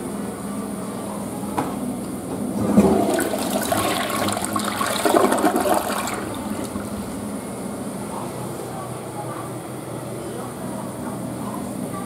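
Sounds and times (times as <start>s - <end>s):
toilet flush click: 2.4s - 7.0s
toilet water rushing and draining: 2.4s - 7.4s.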